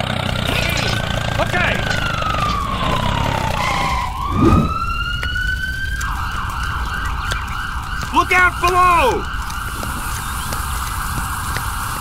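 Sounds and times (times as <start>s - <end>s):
steady low rumble: 0.3s - 8.2s
siren wailing: 0.6s - 12.0s.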